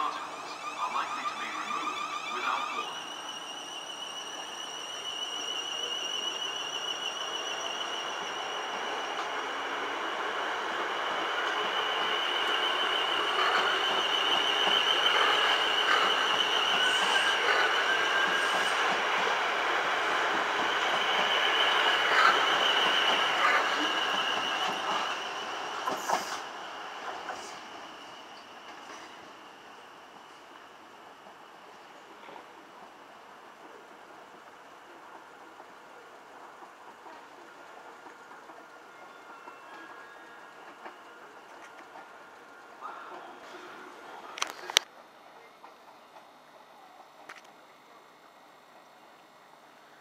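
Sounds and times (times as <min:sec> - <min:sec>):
high wavering squeal: 0:00.0 - 0:26.5
train rumbling over points: 0:00.0 - 0:47.3.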